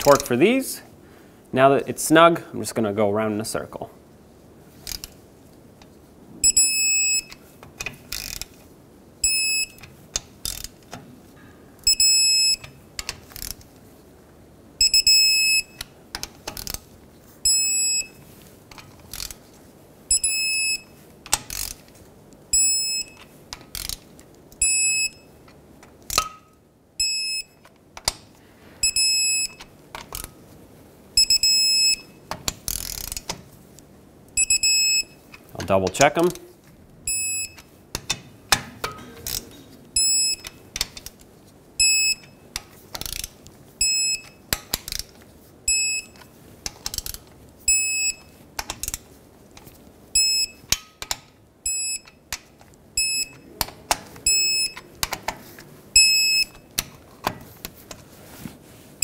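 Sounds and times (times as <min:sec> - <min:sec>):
torque wrench beeping: 0:06.4 - 0:07.4, 0:09.2 - 0:09.9, 0:11.8 - 0:12.8, 0:14.8 - 0:15.8, 0:17.4 - 0:18.2, 0:20.1 - 0:20.9, 0:22.5 - 0:23.9, 0:24.6 - 0:25.3, 0:28.8 - 0:29.7, 0:31.2 - 0:33.2, 0:34.4 - 0:35.4, 0:37.1 - 0:37.7, 0:40.0 - 0:40.6, 0:41.8 - 0:42.4, 0:43.8 - 0:44.4, 0:45.7 - 0:46.2, 0:47.7 - 0:48.3, 0:50.2 - 0:50.7, 0:51.6 - 0:52.2, 0:53.0 - 0:53.5, 0:54.2 - 0:54.8, 0:56.0 - 0:56.6.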